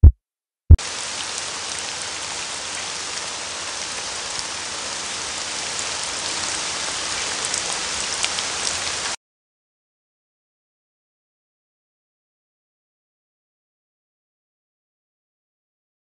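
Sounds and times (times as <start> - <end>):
recorded rain sound from speaker: 0.8 - 9.2.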